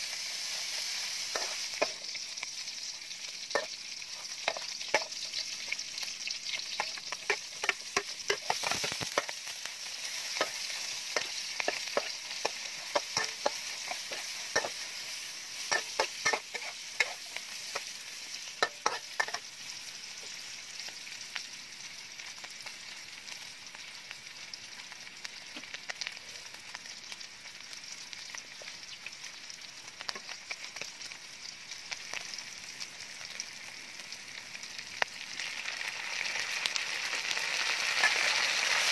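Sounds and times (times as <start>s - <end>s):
pork sizzling in hot oil: 0.0s - 38.9s
metal spatula scraping a wok: 0.4s - 2.2s, 3.5s - 5.5s, 6.5s - 19.6s, 37.8s - 38.9s.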